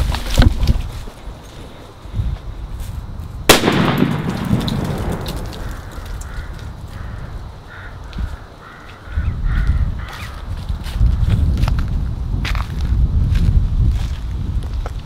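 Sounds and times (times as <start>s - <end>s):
firecracker bang: 3.5s - 6.3s.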